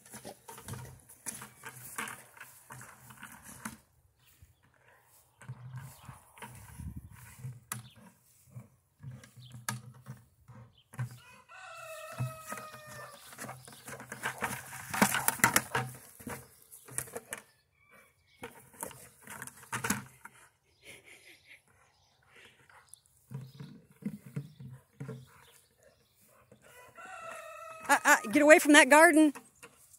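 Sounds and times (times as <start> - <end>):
plastic pail clattering: 0.0 - 3.8, 12.1 - 17.4, 18.4 - 20.3.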